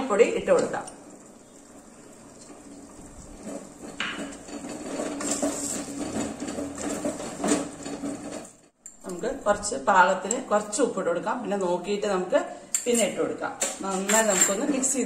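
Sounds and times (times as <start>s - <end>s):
spatula stirring thick curry: 1.0s - 8.8s.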